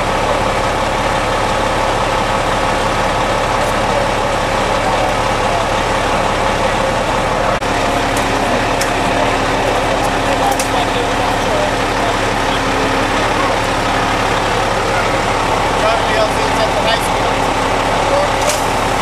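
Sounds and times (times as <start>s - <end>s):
large engine idling: 0.0s - 19.0s.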